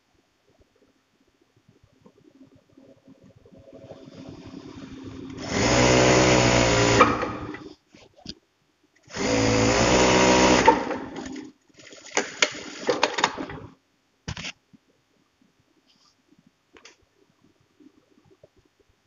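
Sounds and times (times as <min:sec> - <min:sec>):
sewing machine stitching: 0:04.4 - 0:07.7, 0:09.1 - 0:13.7.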